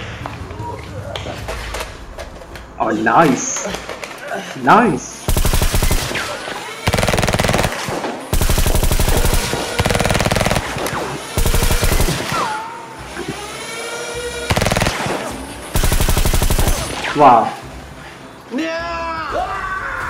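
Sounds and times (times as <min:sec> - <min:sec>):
machine-gun fire: 0:05.3 - 0:12.6, 0:14.5 - 0:17.3.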